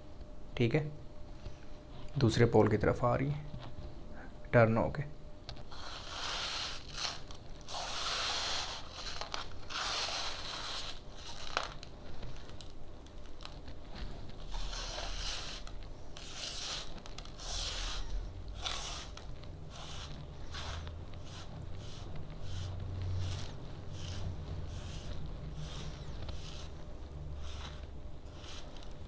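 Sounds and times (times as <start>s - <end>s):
gritty scraping on paper: 5.7s - 12.7s, 13.4s - 29.0s.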